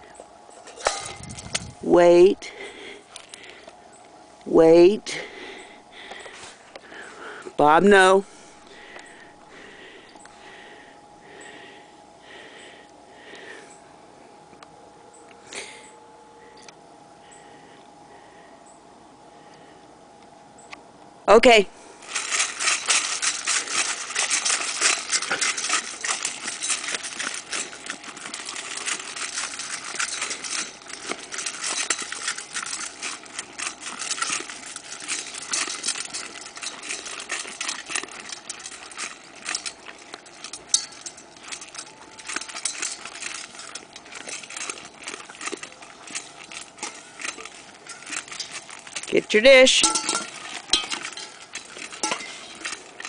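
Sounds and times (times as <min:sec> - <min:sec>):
kibble rattling against metal bowls: 0:00.0 - 0:03.6, 0:22.0 - 0:53.0
dogs crunching dry kibble: 0:00.0 - 0:13.6, 0:21.8 - 0:53.0.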